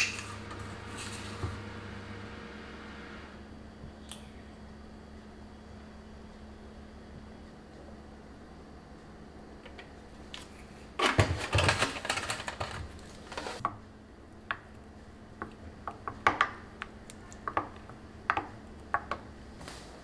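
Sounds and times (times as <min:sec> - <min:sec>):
clattering handling noise: 0:10.4 - 0:13.6.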